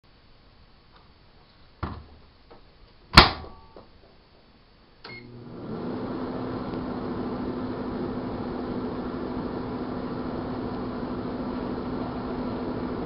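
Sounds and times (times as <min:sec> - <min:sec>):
knock: 0:01.8 - 0:02.2
microwave door slamming: 0:03.2 - 0:03.6
microwave oven humming: 0:05.0 - 0:13.0.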